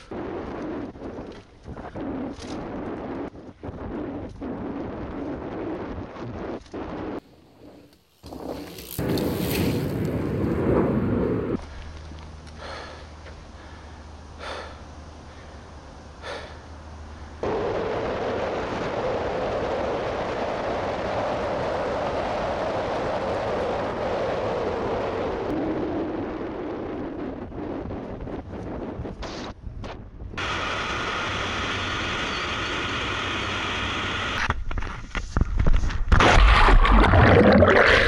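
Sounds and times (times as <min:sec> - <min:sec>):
wind buffeting microphone: 0:00.0 - 0:11.8, 0:17.4 - 0:30.8
low hum: 0:00.0 - 0:34.5.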